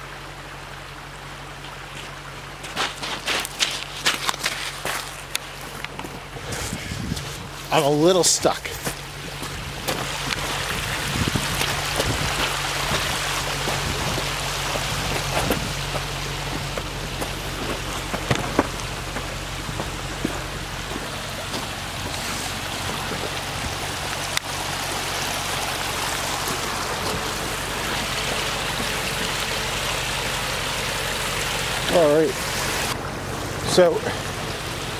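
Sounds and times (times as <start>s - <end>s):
car engine running low: 0.0s - 34.9s
tyres crunching on gravel: 1.5s - 33.0s
stones popping from wheels: 2.6s - 6.1s, 11.4s - 23.4s.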